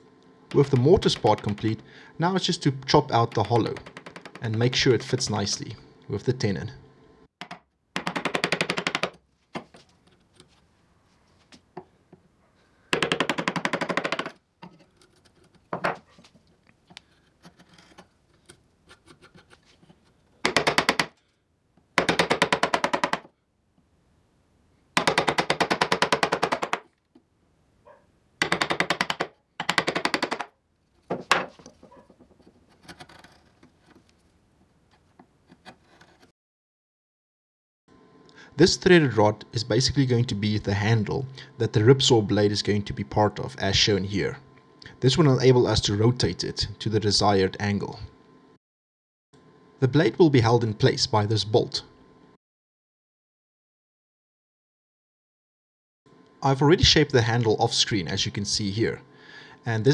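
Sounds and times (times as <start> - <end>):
chisel tapping wood: 0.6 - 1.8.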